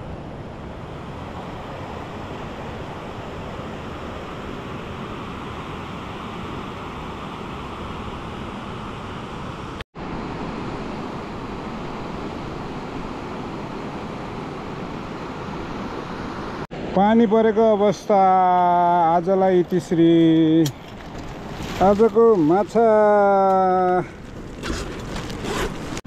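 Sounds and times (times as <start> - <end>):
fast-flowing water rushing: 18.0 - 24.0.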